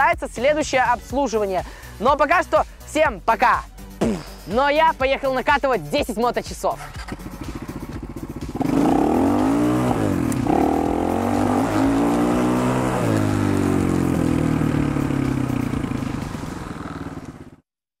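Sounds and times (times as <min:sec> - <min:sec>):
motorcycle engine accelerating: 0:06.8 - 0:17.7.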